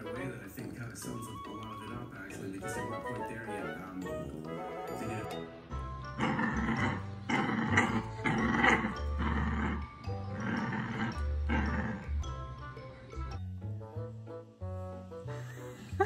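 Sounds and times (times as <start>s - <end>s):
background music: 0.0s - 16.0s
puppy growling: 6.0s - 12.4s.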